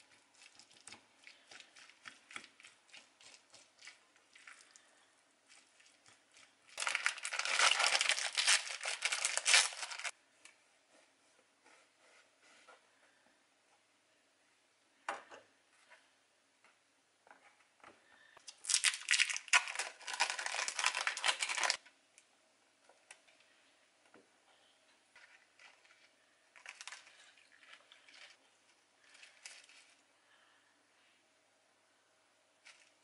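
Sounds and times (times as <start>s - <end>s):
plastic film crinkling: 5.5s - 10.1s, 18.5s - 21.8s, 26.6s - 28.4s.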